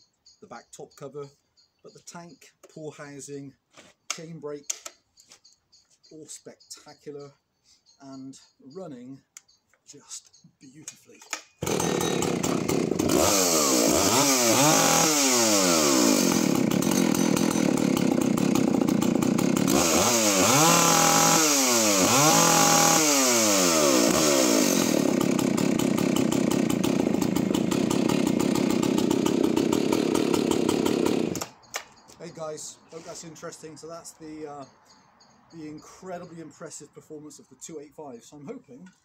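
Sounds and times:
chainsaw revving: 0:11.6 - 0:31.6.

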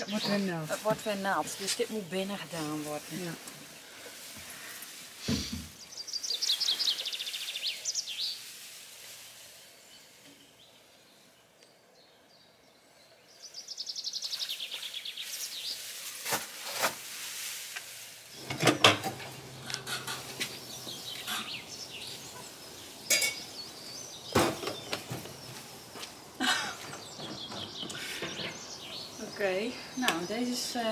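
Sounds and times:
plastic knocks and clatter: 0:18.4 - 0:20.3
songbird trilling: 0:19.2 - 0:25.6.

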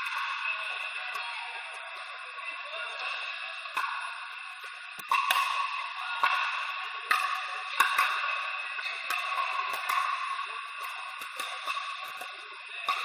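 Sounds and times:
background din in indoor hall: 0:00.0 - 0:13.0
paddles hitting plastic ball: 0:05.0 - 0:05.6, 0:09.0 - 0:13.0.

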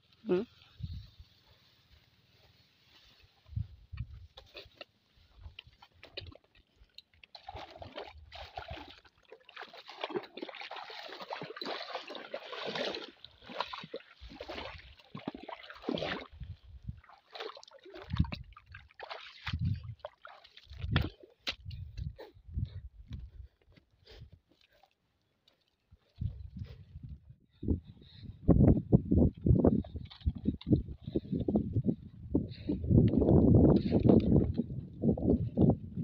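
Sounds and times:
feet sloshing through shallow water: 0:04.3 - 0:22.3, 0:29.8 - 0:31.6.

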